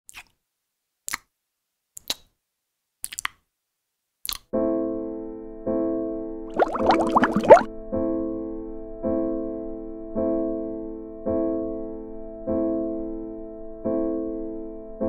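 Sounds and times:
quick gliding sounds: 0:06.6 - 0:07.7.

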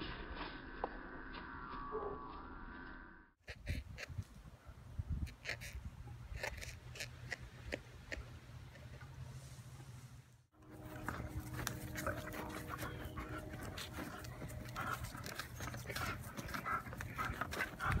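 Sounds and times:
stick clicks and scrapes: 0:05.2 - 0:09.2, 0:10.6 - 0:18.0
dog panting: 0:10.7 - 0:18.0.

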